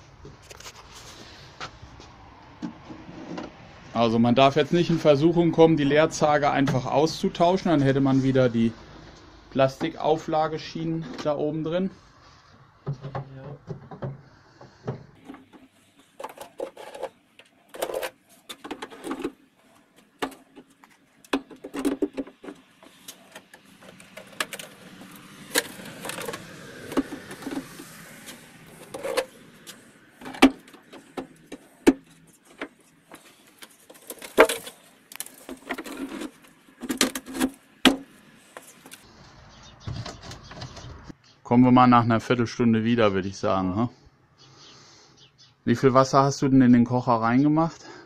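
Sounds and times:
wooden frames knocking and clattering: 12.8 - 27.8, 30.0 - 39.0.

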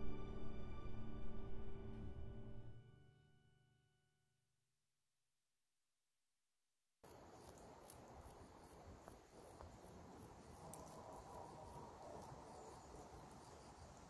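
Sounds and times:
crickets chirping: 7.0 - 14.0.

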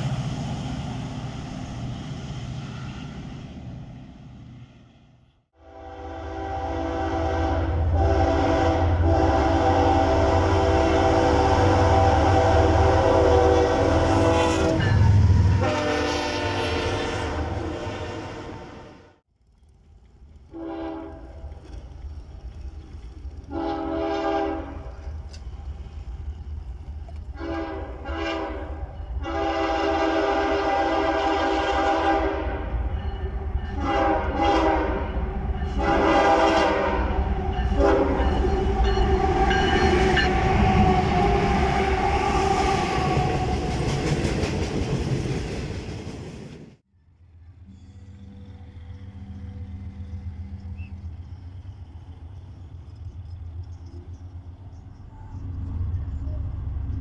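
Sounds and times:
distant train rumble: 0.0 - 57.0
locomotive engine rumble: 0.0 - 57.0
train rolling on rails: 0.0 - 57.0
locomotive horn blasts: 5.6 - 19.2, 20.5 - 21.4, 23.5 - 25.1, 27.3 - 42.1.

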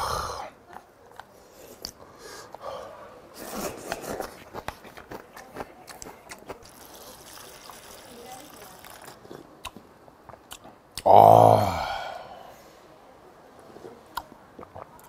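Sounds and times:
person slurping broth: 6.7 - 9.4.

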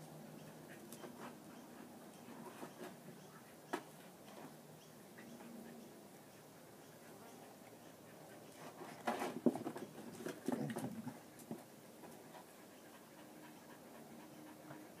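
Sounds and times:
dog panting: 10.3 - 15.0.

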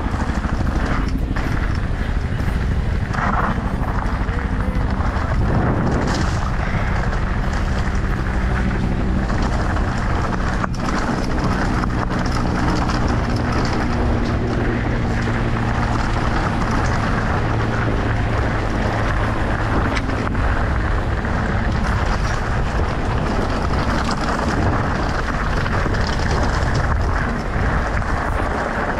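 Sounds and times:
motorcycle engine running: 0.0 - 28.9
wind rumble on microphone: 0.0 - 28.9.

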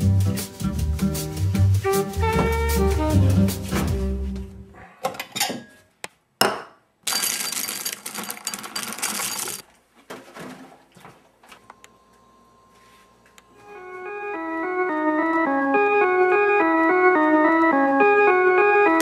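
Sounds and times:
cereal poured into a bowl: 7.1 - 9.6.

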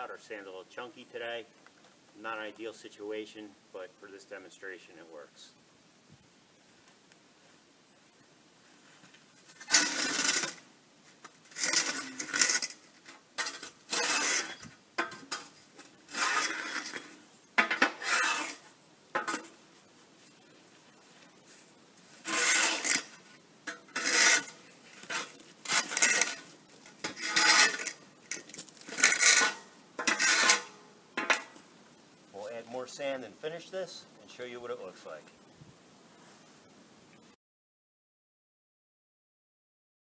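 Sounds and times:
screed beam scraping sand: 9.4 - 10.6, 11.5 - 19.6, 20.3 - 31.6.

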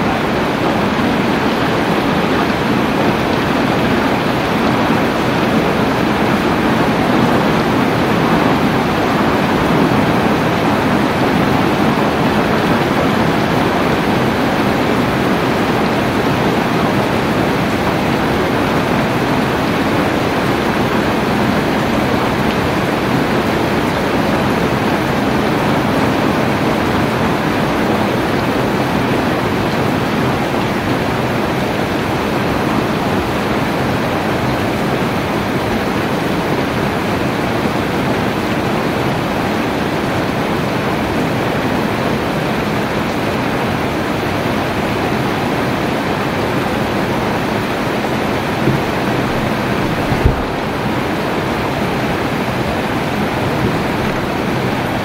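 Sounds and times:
steady rain: 0.0 - 55.0.

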